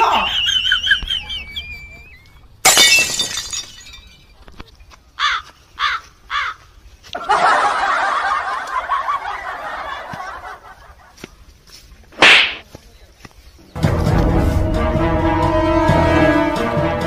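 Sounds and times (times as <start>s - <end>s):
people laughing: 0.0s - 2.2s, 7.2s - 11.2s.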